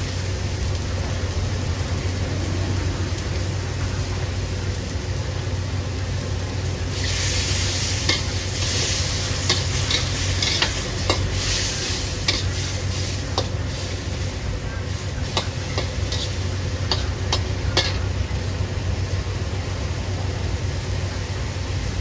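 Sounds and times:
shrimp sizzling in a wok: 0.0s - 22.0s
metal spatula scraping a wok: 7.0s - 18.1s.

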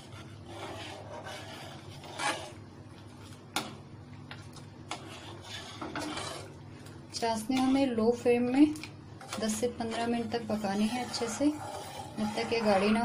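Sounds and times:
steady low hum: 0.0s - 13.0s
ladle scraping steel pan: 4.9s - 6.5s, 9.3s - 13.0s.

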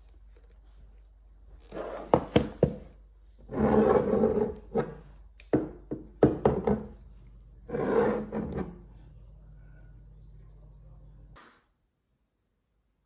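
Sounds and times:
rubbing and sliding on table: 1.7s - 2.3s, 3.4s - 5.1s, 7.6s - 8.9s
objects knocking on wooden table: 5.5s - 7.0s.

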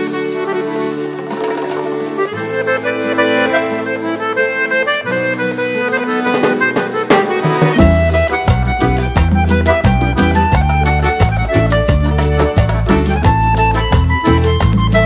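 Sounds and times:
accordion melody: 0.0s - 15.0s
deep bass line: 7.8s - 15.0s.

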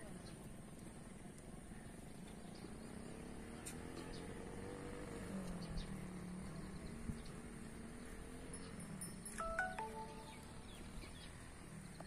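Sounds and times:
small high chirps: 8.7s - 10.9s.

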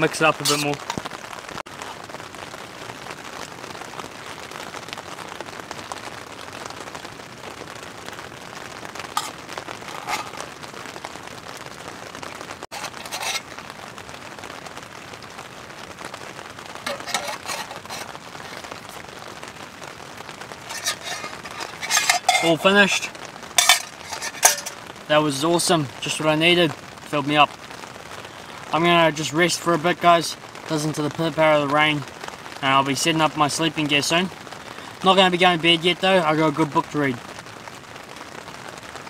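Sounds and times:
rain pattering on tent fabric: 0.0s - 39.0s
spoon scraping in metal mug: 0.4s - 0.9s, 9.2s - 10.4s, 12.7s - 13.5s, 16.9s - 18.1s, 20.6s - 24.8s.

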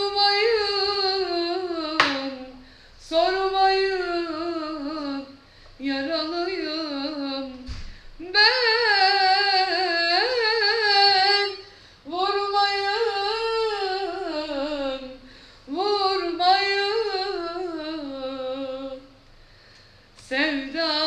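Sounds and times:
woman singing unaccompanied: 0.0s - 19.2s, 20.2s - 21.0s
person breathing: 2.6s - 3.0s, 5.4s - 5.8s, 11.7s - 12.1s, 15.2s - 15.7s, 19.4s - 20.2s.

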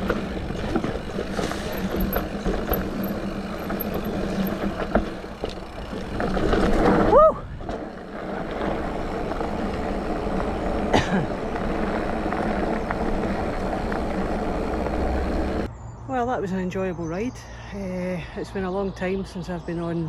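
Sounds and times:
bike knocks and rattles: 0.0s - 15.7s
bike tyres and wind rushing: 0.0s - 16.1s
rider whooping: 6.8s - 7.8s.

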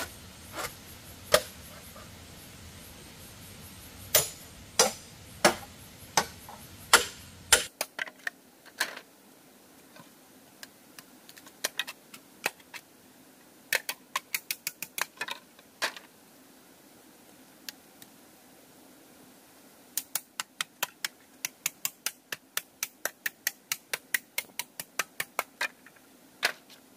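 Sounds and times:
sharp knocks on bamboo post: 4.1s - 7.9s
clicks of bamboo poles: 4.1s - 9.0s, 10.0s - 12.9s, 13.7s - 16.1s, 20.0s - 26.8s.

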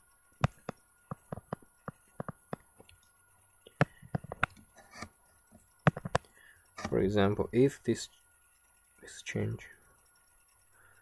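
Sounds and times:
stylus clicking on a tablet: 5.8s - 7.0s.

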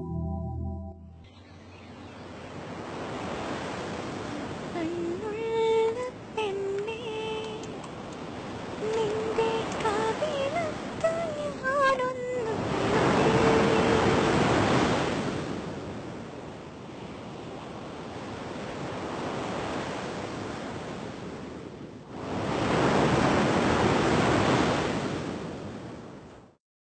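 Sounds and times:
sea waves breaking: 1.4s - 26.0s.

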